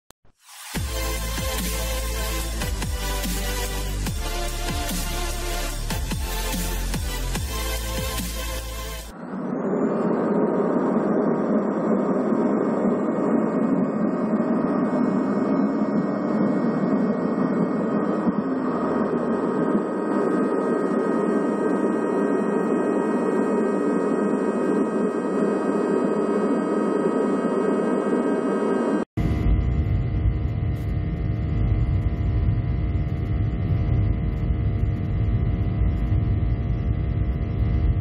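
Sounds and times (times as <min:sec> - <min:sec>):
jet engines roaring in cabin: 0:09.1 - 0:29.1.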